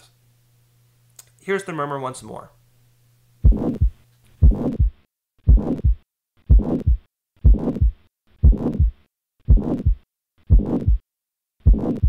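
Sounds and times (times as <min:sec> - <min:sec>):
heartbeat with harsh murmur: 0:03.4 - 0:11.0, 0:11.6 - 0:12.0.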